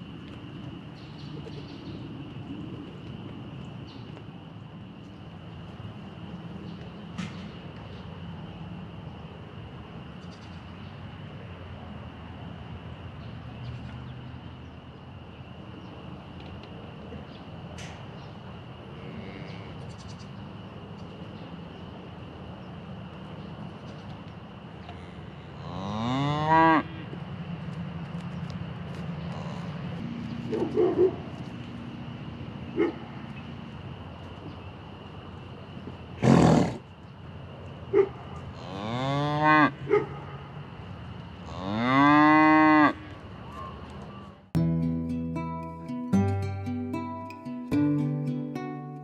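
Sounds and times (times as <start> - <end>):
cow mooing: 24.9 - 26.9, 41.5 - 43.0
high-pitched chorus: 44.6 - 49.0.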